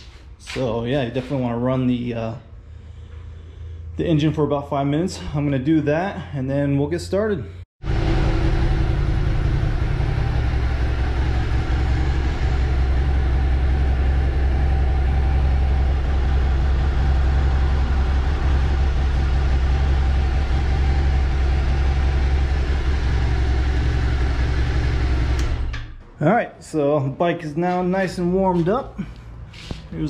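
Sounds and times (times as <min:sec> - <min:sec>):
motorcycle engine idling: 0:07.9 - 0:25.6.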